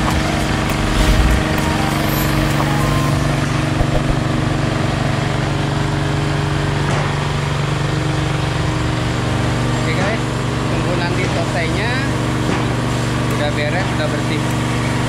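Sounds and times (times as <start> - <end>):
machine motor humming: 0.0 - 4.4
even hiss: 0.5 - 3.1.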